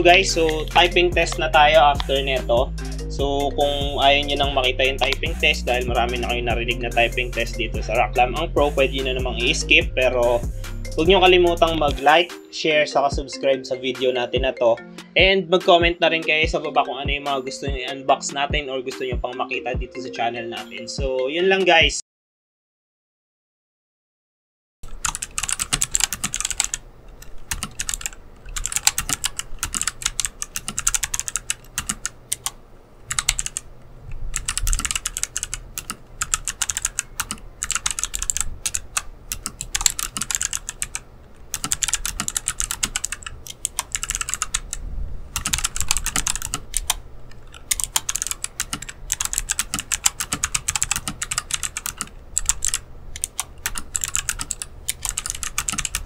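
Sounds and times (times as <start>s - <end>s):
fast typing on clicky keyboard: 0.1s - 2.6s, 3.6s - 6.4s, 8.8s - 9.6s, 24.8s - 33.7s, 34.3s - 56.0s.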